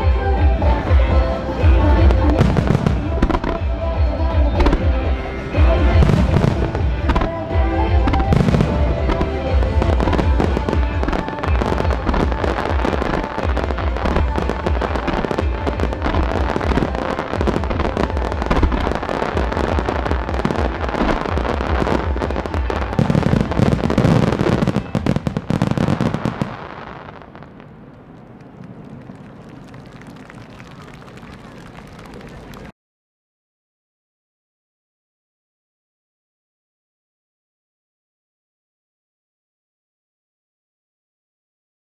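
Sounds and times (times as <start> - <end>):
music playing: 0.0 - 27.2
fireworks bursts and crackling: 0.0 - 32.7
deep fireworks booms: 1.8 - 29.7.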